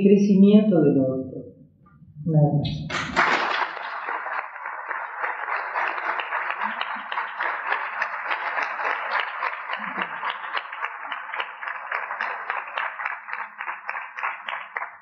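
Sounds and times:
large audience applauding: 0:02.9 - 0:15.0.

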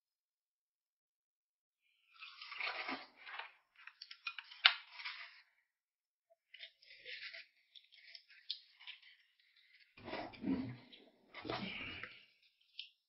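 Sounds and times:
crunching and chewing: 0:06.4 - 0:13.0.

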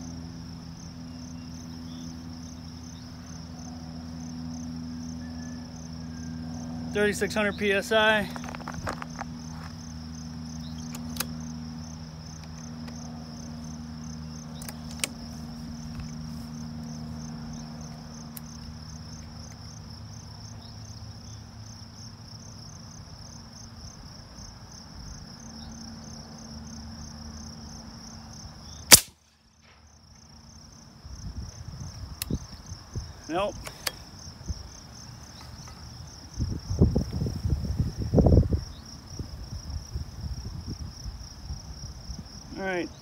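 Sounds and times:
insects trilling: 0:00.0 - 0:43.0
air rifle shot: 0:28.9 - 0:29.9.

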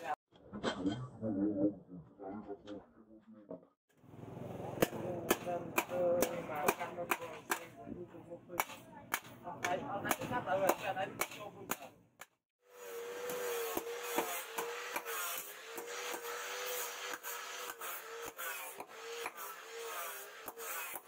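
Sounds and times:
hammer striking steel on anvil: 0:04.8 - 0:07.7, 0:08.6 - 0:12.3, 0:13.2 - 0:19.5.

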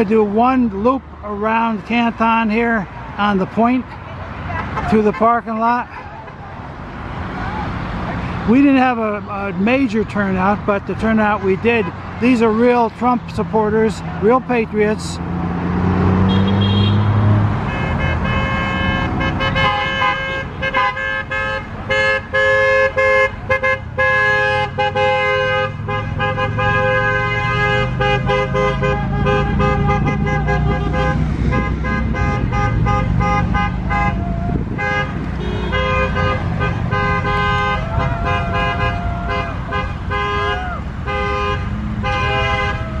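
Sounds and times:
truck engines running: 0:00.0 - 0:43.0
vehicle horns honking: 0:04.5 - 0:06.5, 0:16.0 - 0:43.0.

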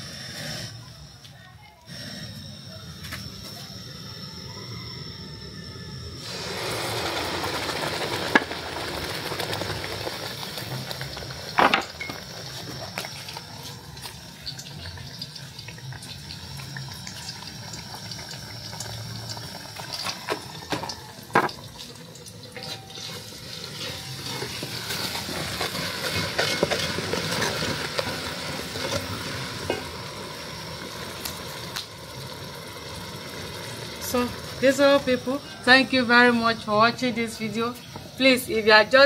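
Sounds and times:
paste sizzling in a pot: 0:00.0 - 0:39.0
wooden spoon scraping a pot: 0:22.6 - 0:29.8.

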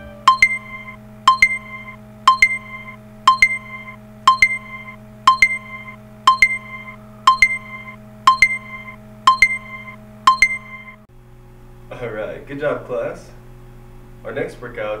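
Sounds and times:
timer alarm ringing: 0:00.0 - 0:11.1.

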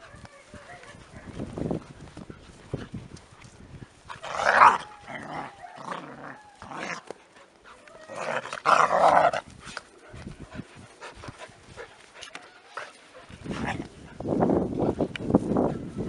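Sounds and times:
puppies growling and snarling: 0:04.1 - 0:09.6.

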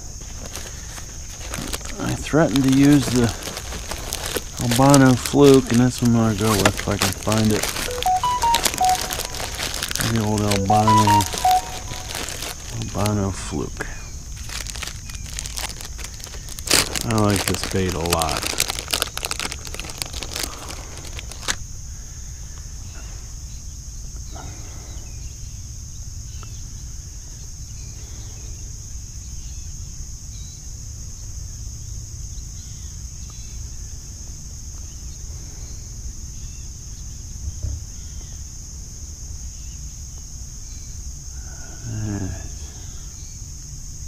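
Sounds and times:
insects droning: 0:00.0 - 0:44.0
plastic packaging crinkling: 0:00.2 - 0:13.6, 0:14.2 - 0:21.6.

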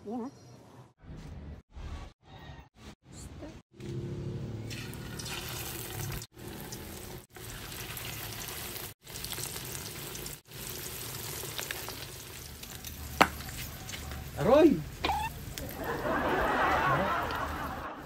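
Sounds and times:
hot oil sizzling in a wok: 0:05.0 - 0:15.6.

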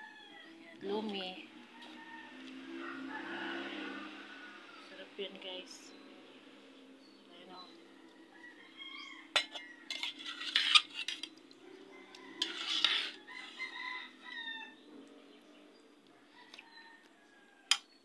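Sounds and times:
rooster crowing: 0:00.0 - 0:00.8, 0:01.6 - 0:05.1, 0:07.8 - 0:10.2, 0:11.6 - 0:14.9, 0:16.1 - 0:17.8.

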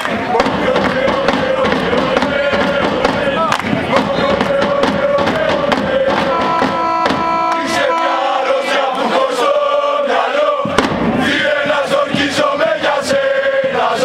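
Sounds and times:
crowd chanting and singing: 0:00.0 - 0:14.0
sharp beats: 0:00.1 - 0:08.4.

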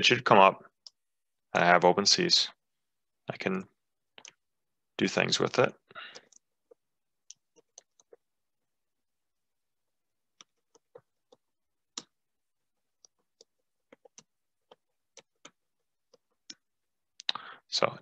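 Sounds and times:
keyboard typing: 0:06.1 - 0:08.3, 0:10.4 - 0:12.2, 0:13.0 - 0:16.6.

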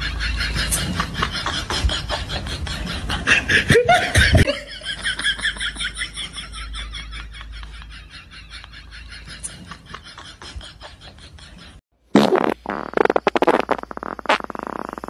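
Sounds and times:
person giggling: 0:00.0 - 0:06.0.

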